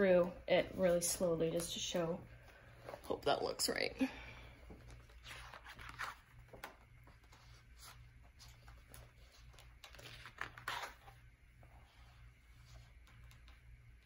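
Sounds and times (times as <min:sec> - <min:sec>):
paper pages rustling: 0:04.8 - 0:13.8.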